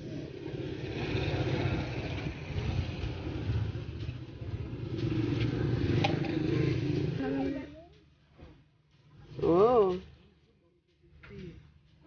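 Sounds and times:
vehicle engine running: 0:00.0 - 0:08.1
street traffic rumble: 0:00.0 - 0:12.0.

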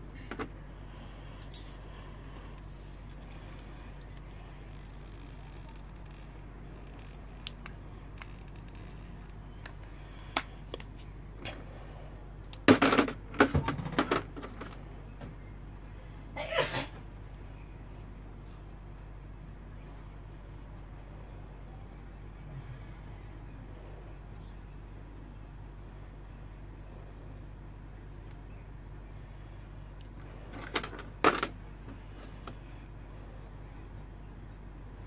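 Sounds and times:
low steady hum: 0:00.0 - 0:35.0
toy parts clicking and rattling: 0:04.7 - 0:09.8.

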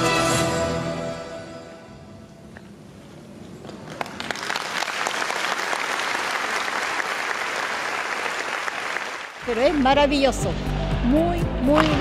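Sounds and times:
audience applauding: 0:03.7 - 0:09.6.

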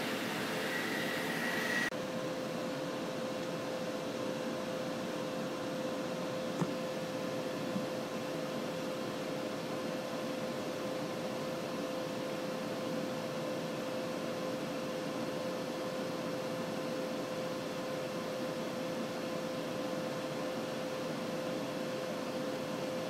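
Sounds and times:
fan-like hiss and hum: 0:00.0 - 0:23.0.

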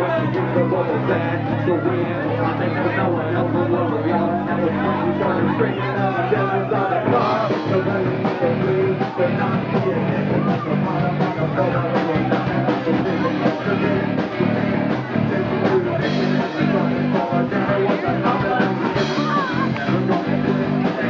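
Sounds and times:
person singing: 0:00.0 - 0:21.0
rock band playing: 0:00.0 - 0:21.0
drum beat: 0:06.8 - 0:21.0.

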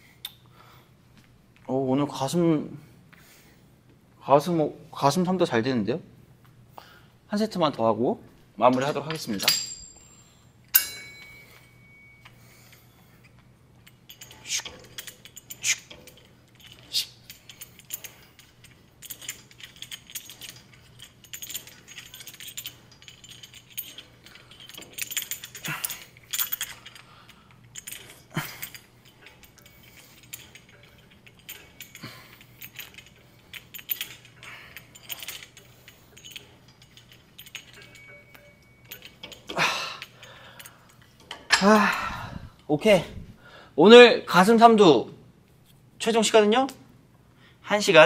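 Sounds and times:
faint steady hum: 0:00.0 - 0:47.8
gym weights clinking: 0:08.7 - 0:42.5.

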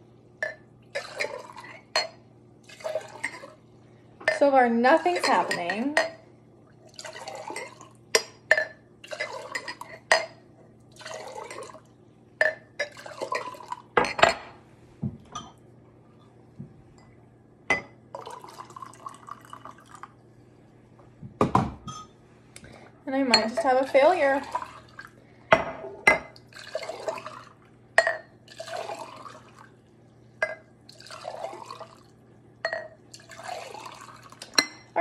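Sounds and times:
liquid pouring between glasses: 0:01.0 - 0:02.0, 0:02.6 - 0:03.6, 0:06.7 - 0:08.1, 0:09.0 - 0:10.0, 0:10.8 - 0:11.9, 0:12.8 - 0:14.0, 0:18.1 - 0:20.3, 0:23.4 - 0:25.2, 0:26.2 - 0:27.8, 0:28.4 - 0:34.8
glass clinks: 0:21.8 - 0:22.2.

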